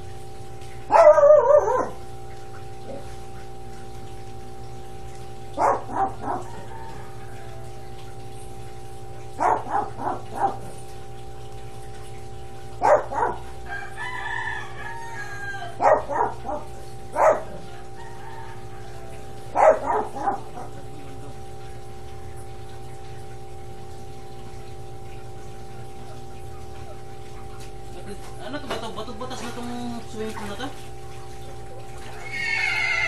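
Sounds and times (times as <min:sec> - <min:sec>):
rooster crowing: 0:06.3 - 0:07.9, 0:13.6 - 0:15.8, 0:17.6 - 0:19.4, 0:32.2 - 0:33.0.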